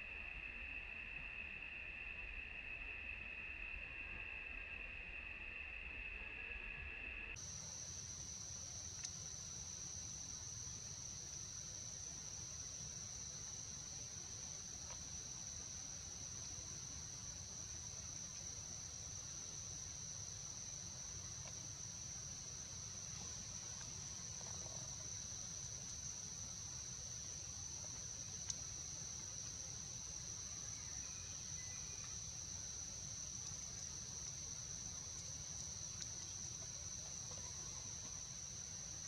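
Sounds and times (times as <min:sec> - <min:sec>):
high-pitched insect chorus: 0:00.0 - 0:39.0.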